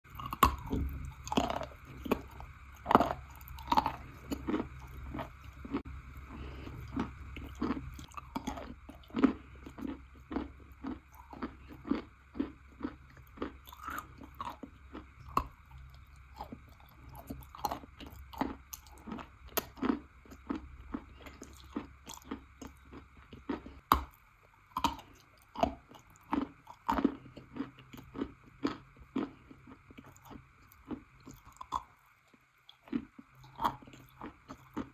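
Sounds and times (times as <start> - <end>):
steady low hum: 0.0 - 34.9
person chewing crunchy chalk: 0.1 - 34.9.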